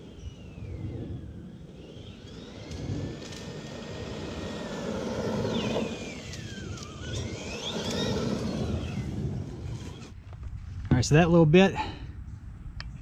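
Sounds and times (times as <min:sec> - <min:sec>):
toy truck motor whine: 0:00.0 - 0:10.2
tyres rumbling on pavement: 0:01.8 - 0:10.2.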